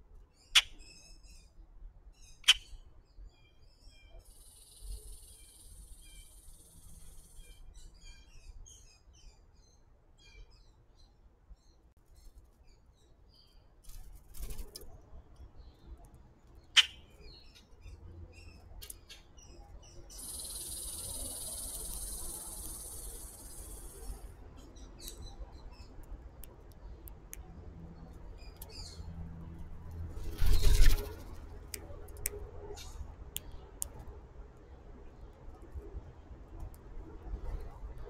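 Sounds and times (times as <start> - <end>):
birds chirping: 16.6 - 26.0, 28.0 - 31.6.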